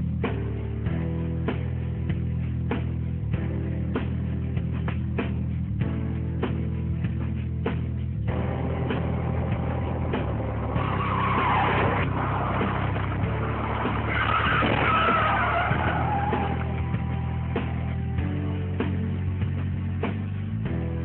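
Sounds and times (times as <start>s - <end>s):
car tyres squealing: 9.0s - 17.9s.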